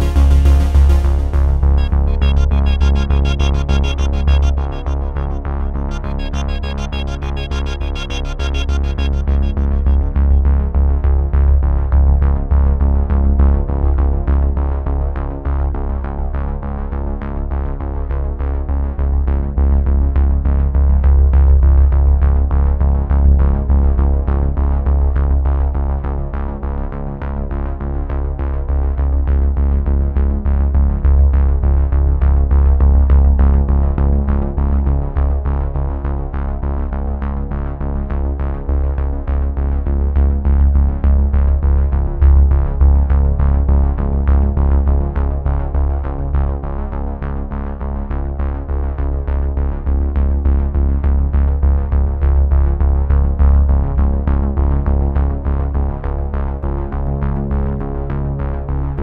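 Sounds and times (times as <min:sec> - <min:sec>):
music with steady beat and bass: 0:00.0 - 0:14.2, 0:38.8 - 0:59.0.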